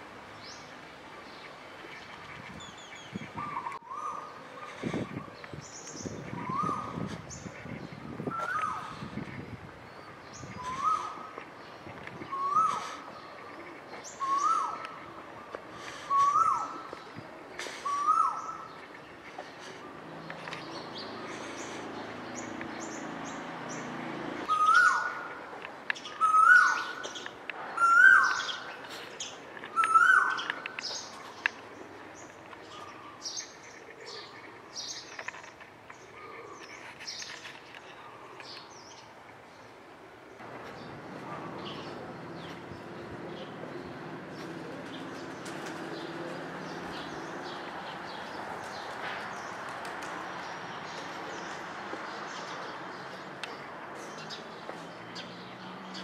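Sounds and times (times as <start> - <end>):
small birds chirping: 0.3 - 56.0
bird whistled call: 10.6 - 11.2, 24.5 - 25.2.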